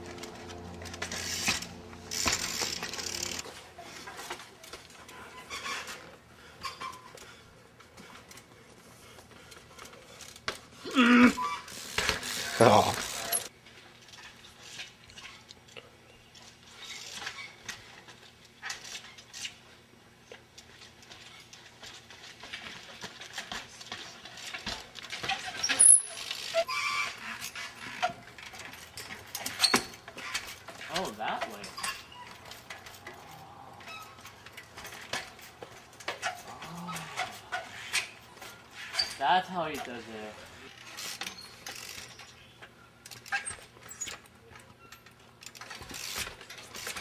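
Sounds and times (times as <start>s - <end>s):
bike metallic clinks and knocks: 11.4s - 15.4s, 20.6s - 39.2s, 40.7s - 47.0s.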